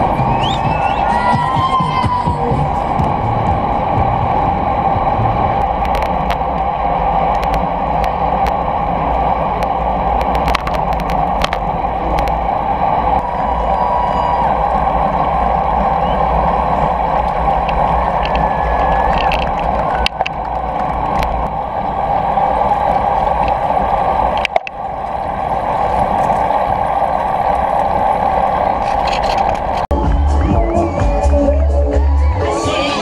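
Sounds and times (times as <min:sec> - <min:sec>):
music: 0:00.0 - 0:04.3, 0:29.9 - 0:33.0
wind noise: 0:00.0 - 0:32.1
low road rumble: 0:00.0 - 0:33.0.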